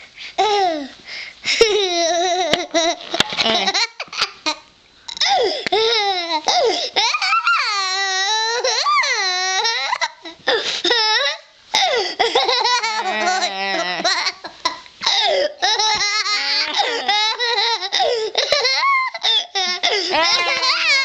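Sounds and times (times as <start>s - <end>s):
young child laughing and squealing: 7.0s - 10.4s, 12.2s - 21.0s.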